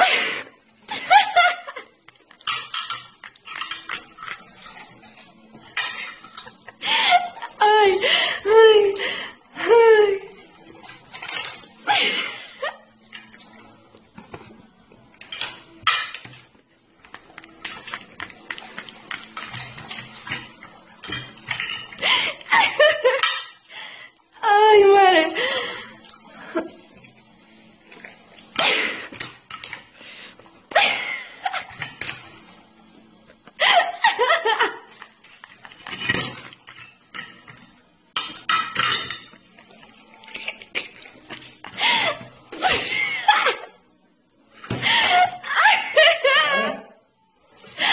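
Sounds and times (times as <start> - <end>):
plate and cutlery clattering: 2.4 - 6.8, 10.7 - 12.2, 15.2 - 16.5, 17.6 - 22.0, 22.8 - 23.6, 31.6 - 32.3, 34.5 - 39.6
people laughing: 44.9 - 46.9.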